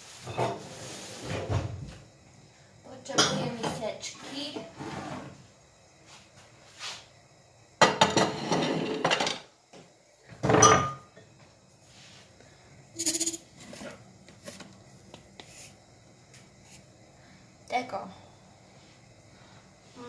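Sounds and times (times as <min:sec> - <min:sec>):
dishes and utensils clattering: 0:03.2 - 0:03.8, 0:07.8 - 0:09.5, 0:10.4 - 0:11.2.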